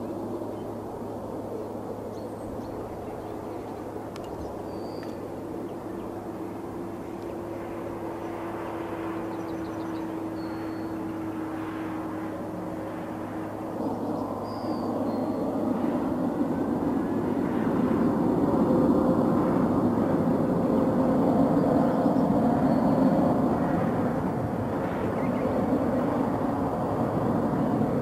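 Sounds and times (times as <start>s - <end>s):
distant jet engines humming: 0.0s - 28.0s
small birds chirping: 1.6s - 6.2s, 9.2s - 11.3s, 13.8s - 15.5s.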